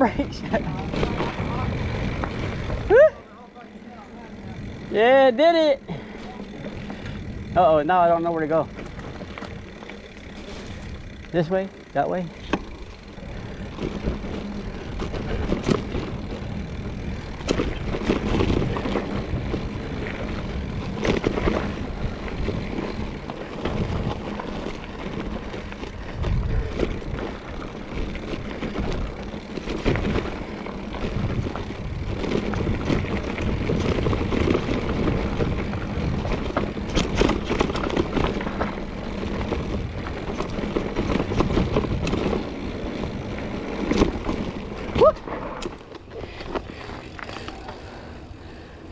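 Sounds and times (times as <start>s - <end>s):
bike rattling over bumps: 0.0s - 48.9s
bike tyres rolling over dirt: 0.0s - 48.9s.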